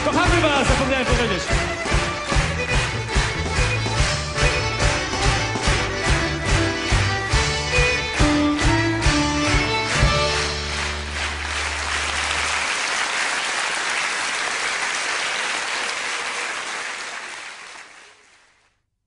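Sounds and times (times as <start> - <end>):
small folk band playing: 0.0 - 12.4
audience applauding: 0.0 - 18.7.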